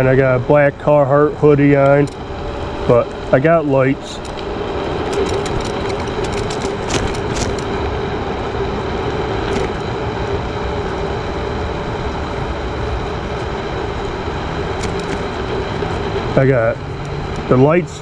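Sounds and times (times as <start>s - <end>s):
electric scooter motor hum: 0.0s - 18.0s
road and wind noise: 0.0s - 18.0s
sharp clicks or rattles: 4.2s - 7.8s, 9.5s - 9.9s, 14.8s - 15.4s.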